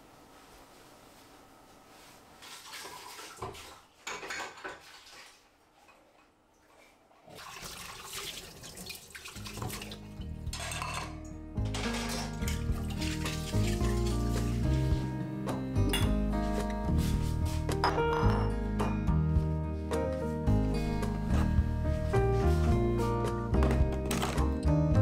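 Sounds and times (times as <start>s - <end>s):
dishes clinking in metal sink: 3.4s - 5.3s, 9.5s - 14.0s, 15.9s - 16.2s, 17.8s - 19.0s
kitchen tap running: 7.3s - 10.2s
soft background music: 9.0s - 25.0s
bowl set into wire rack: 10.5s - 14.1s.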